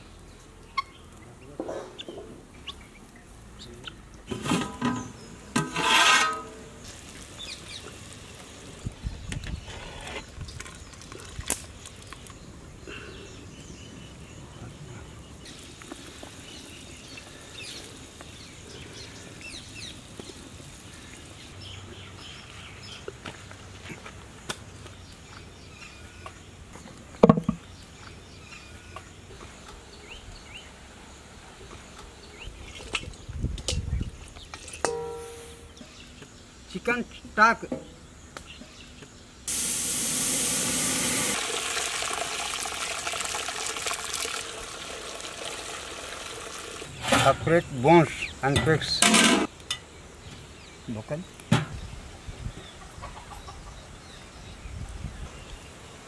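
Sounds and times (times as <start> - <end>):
guinea fowl calling: 52.7 - 53.9.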